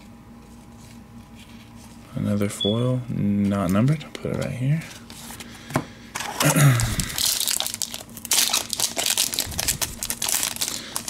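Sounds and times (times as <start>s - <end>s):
foil wrapper crinkling: 6.3s - 11.0s.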